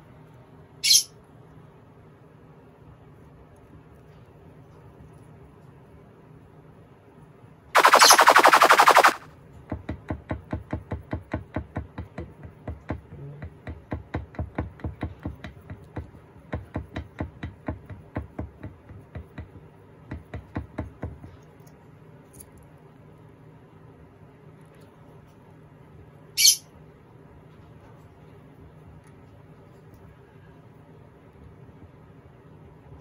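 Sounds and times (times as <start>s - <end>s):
loud rapid rattle: 7.8s - 9.2s.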